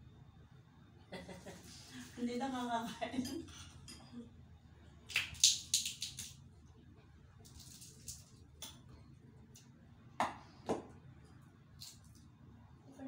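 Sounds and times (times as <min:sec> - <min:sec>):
nutcracker cracking almond shells: 0:05.1 - 0:06.4.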